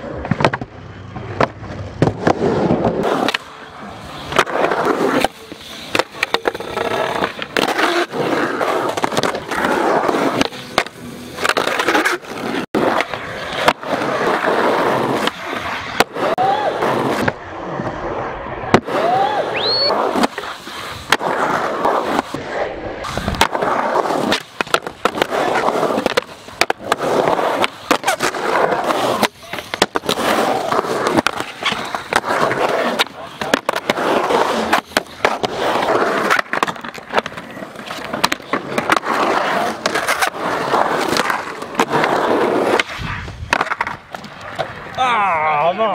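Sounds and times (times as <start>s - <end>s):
skateboard clacks: 0.0s - 18.0s, 23.0s - 45.1s
skateboard wheels rolling on concrete: 0.0s - 45.9s.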